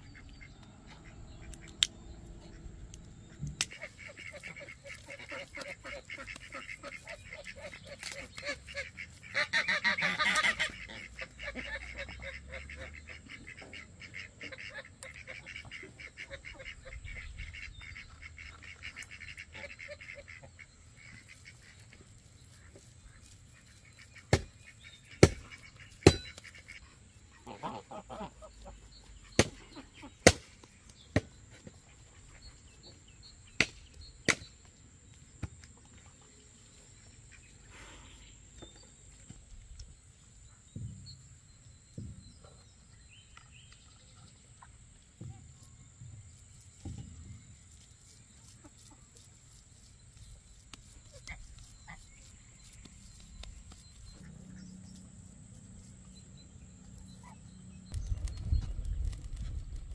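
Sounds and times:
poultry honking: 3.5 - 21.8, 23.8 - 30.3.

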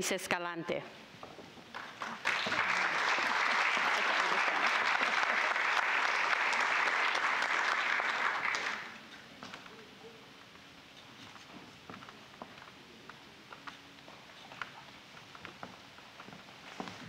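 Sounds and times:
audience applauding: 1.7 - 9.0.

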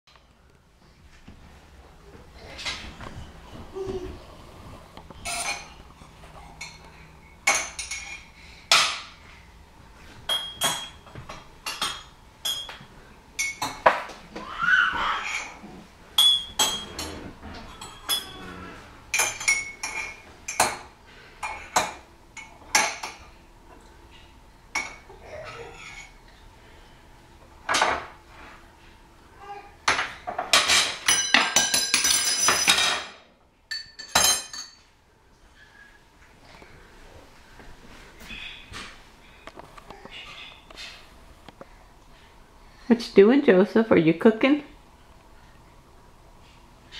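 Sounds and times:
spoon clinking against dishes: 10.3 - 12.8, 13.4 - 13.8, 16.2 - 18.4, 19.1 - 20.8, 30.5 - 33.1, 33.7 - 34.8.

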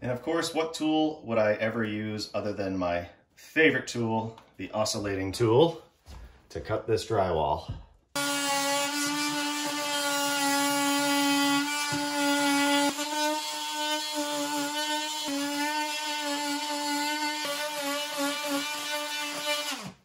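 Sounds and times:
oscillating tool cutting drywall: 8.2 - 20.0.

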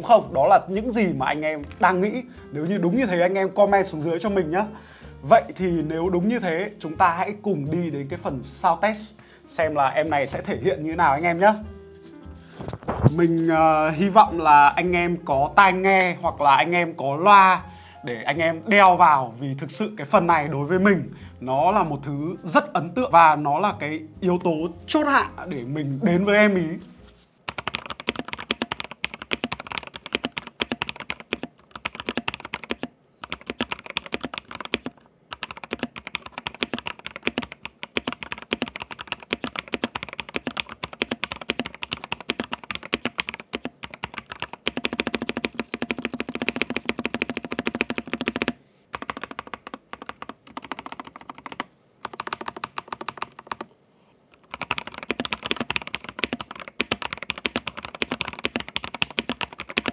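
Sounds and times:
mechanical keyboard typing clacks: 27.5 - 53.7, 54.4 - 59.9.

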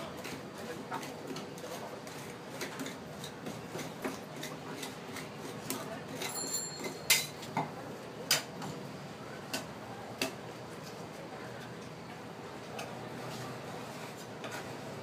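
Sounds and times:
metal spatulas clacking and scraping: 2.6 - 7.5.

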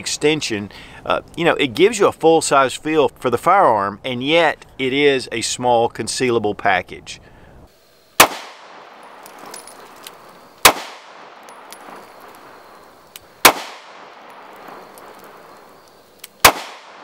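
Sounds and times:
pistol shots with echo: 8.2 - 9.6, 10.6 - 12.8, 13.4 - 15.7, 16.4 - 17.0.

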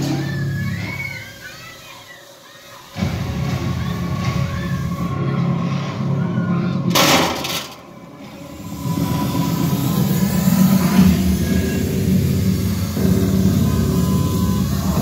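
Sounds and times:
low mechanical rumble: 7.8 - 15.0.

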